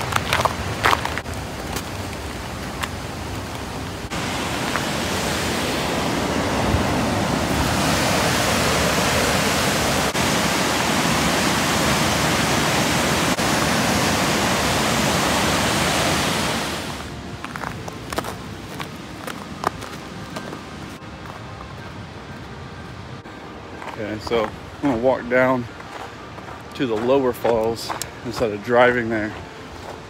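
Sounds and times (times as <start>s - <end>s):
waterfall rushing: 1.4s - 17.2s.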